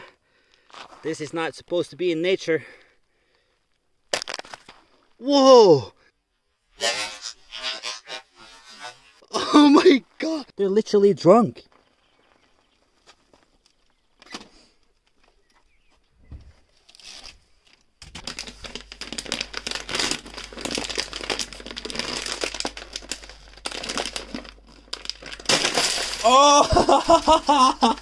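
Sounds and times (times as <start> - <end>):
coffee bag crinkling and tearing: 4.2 - 4.7, 16.8 - 28.0.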